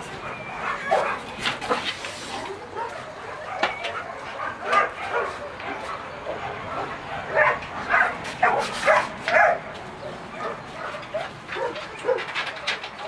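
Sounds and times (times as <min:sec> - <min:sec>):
dog high-pitched calls: 0:00.2 - 0:01.2.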